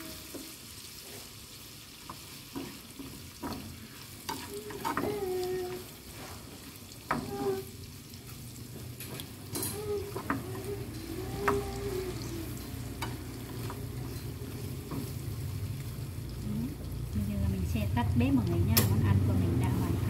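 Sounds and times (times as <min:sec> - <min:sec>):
pork sizzling in frying pan: 0:00.0 - 0:20.0
chopsticks scraping pan: 0:04.3 - 0:05.3.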